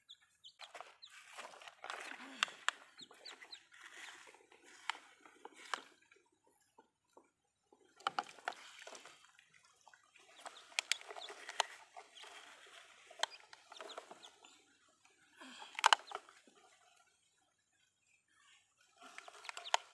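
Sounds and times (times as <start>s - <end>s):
chickens clucking: 0.0s - 6.1s, 8.8s - 16.4s, 19.0s - 19.9s
plastic toy trucks clacking: 0.6s - 6.1s, 7.9s - 9.1s, 10.4s - 14.6s, 15.4s - 16.4s, 19.0s - 19.9s
small water splashes: 0.6s - 17.9s.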